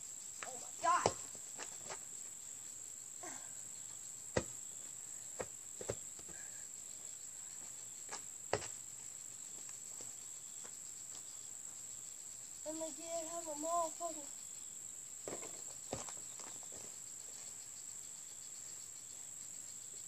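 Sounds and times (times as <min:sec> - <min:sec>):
high-pitched insect drone: 0:00.0 - 0:20.0
basketball knocks: 0:00.9 - 0:01.3.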